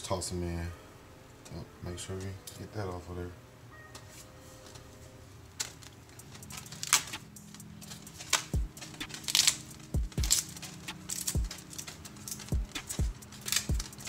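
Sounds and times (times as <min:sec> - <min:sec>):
kale leaves tearing and rustling: 0:05.6 - 0:14.0.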